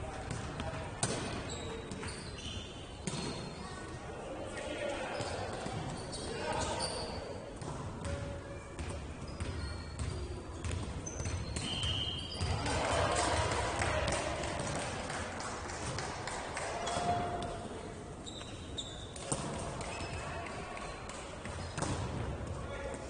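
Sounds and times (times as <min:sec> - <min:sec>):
sneaker squeaks on floor: 0:01.0 - 0:03.6, 0:05.2 - 0:07.3, 0:08.8 - 0:12.6, 0:18.2 - 0:20.3
ball bouncing: 0:21.4 - 0:22.3.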